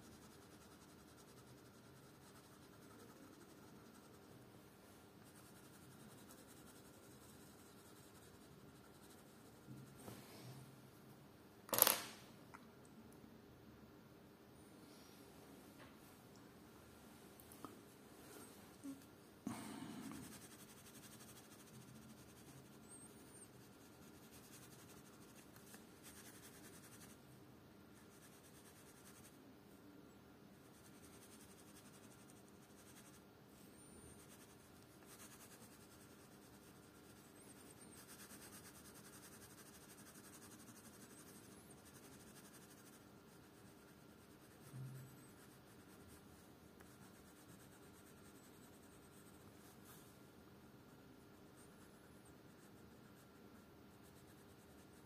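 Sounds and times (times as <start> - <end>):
pencil scratching on paper: 0.0 - 4.4, 5.2 - 10.0, 19.9 - 27.2, 30.7 - 33.2, 34.0 - 50.1, 50.9 - 55.0.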